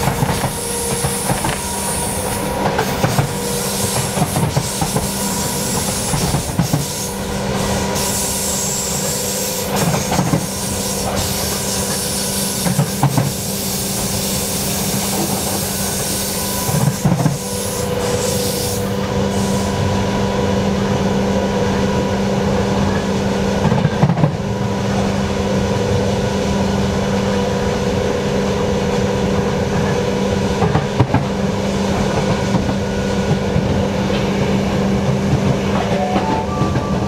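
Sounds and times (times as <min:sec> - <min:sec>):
wheel-on-rail noise: 0:00.0 - 0:19.8
train interior hum: 0:00.0 - 0:37.0.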